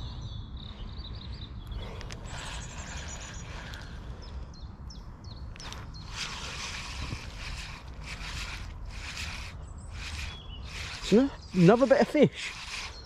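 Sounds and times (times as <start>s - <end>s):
small bird chirping: 0.0s - 13.0s
spinning reel whirring: 6.0s - 13.0s.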